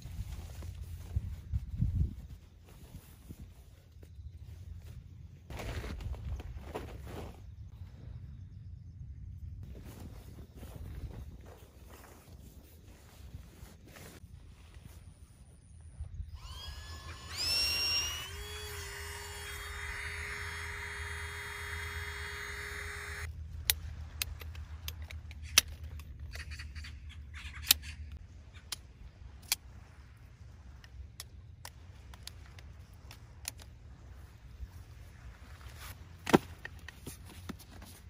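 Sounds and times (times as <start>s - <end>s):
small motor whining: 16.2s - 23.3s.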